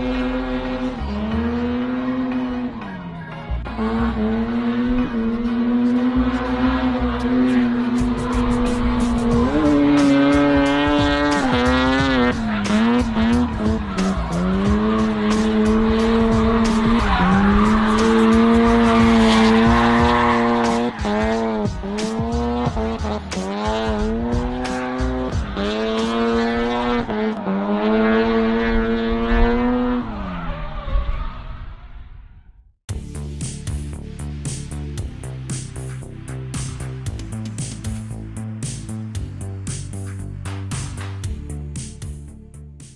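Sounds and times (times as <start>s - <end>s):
rotary engine at high revs: 0.0s - 2.8s, 3.7s - 31.0s
tyre squeal and skidding: 5.8s - 22.7s, 29.7s - 32.2s.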